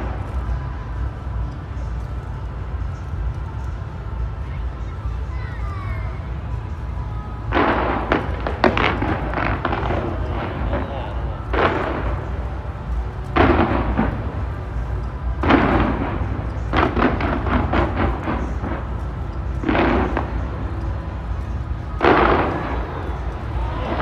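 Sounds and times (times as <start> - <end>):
continuous low rumble: 0.0 - 24.0
fireworks bangs: 0.0 - 24.0
quick firework cracks: 7.4 - 24.0.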